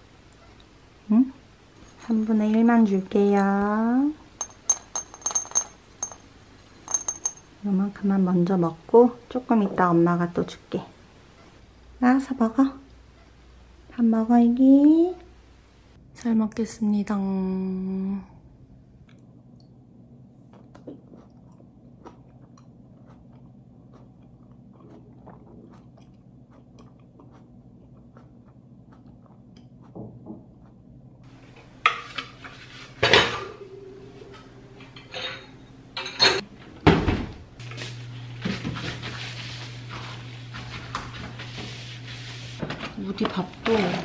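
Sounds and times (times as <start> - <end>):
steady low hum: 0.0 - 44.0
cats crunching kibble: 20.5 - 29.9
dishes and cutlery clattering: 34.9 - 36.4.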